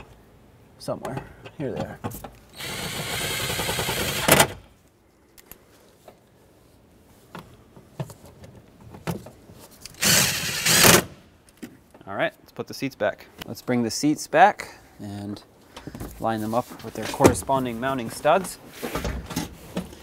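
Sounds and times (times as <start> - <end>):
power tool buzzing: 2.6 - 4.6.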